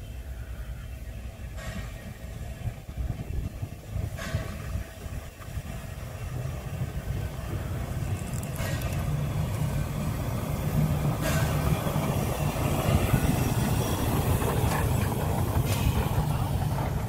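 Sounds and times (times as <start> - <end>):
locomotive wheels rumbling on rails: 0.0 - 17.0
steam hisses: 1.3 - 17.0.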